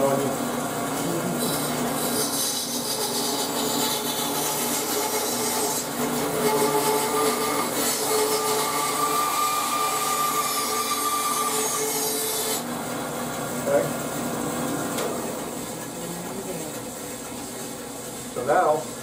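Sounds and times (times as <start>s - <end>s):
bandsaw running: 0.0s - 18.8s
bandsaw cutting wood: 0.9s - 12.7s.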